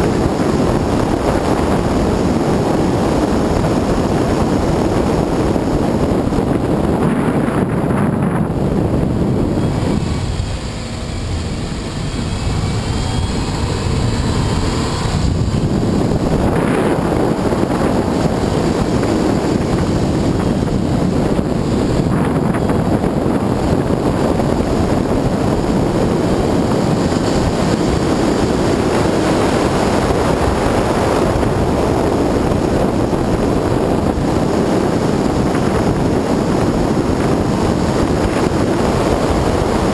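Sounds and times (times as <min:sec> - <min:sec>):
wind rushing over microphone: 0:00.0 - 0:39.9
car engine: 0:07.7 - 0:32.6.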